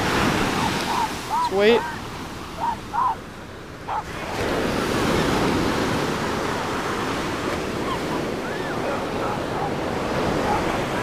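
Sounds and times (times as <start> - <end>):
ocean surf breaking: 0.0 - 11.0
wind on microphone: 3.9 - 11.0.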